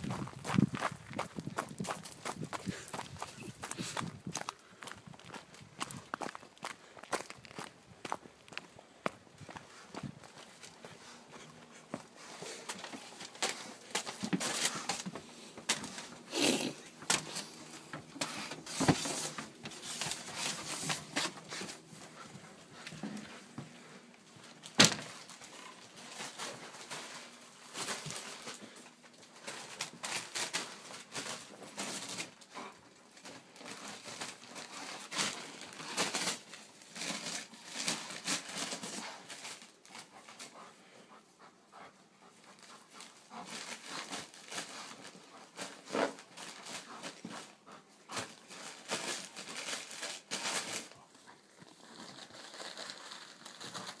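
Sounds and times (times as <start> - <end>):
dog tearing paper: 42.6 - 47.5, 48.1 - 51.0, 51.6 - 54.0.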